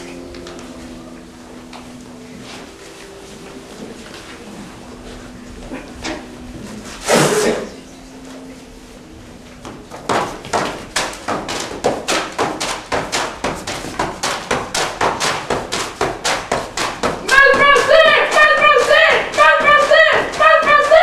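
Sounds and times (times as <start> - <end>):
boxing gloves punching paper: 10.1 - 21.0.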